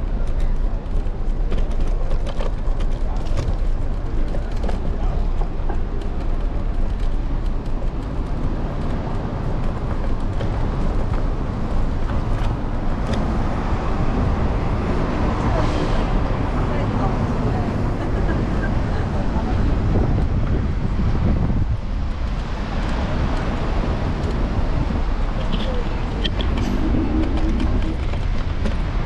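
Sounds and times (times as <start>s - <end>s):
small clicks and rattles: 0.0s - 13.2s
road noise: 0.0s - 29.0s
street traffic: 0.0s - 29.0s
wind rumble: 0.0s - 29.0s.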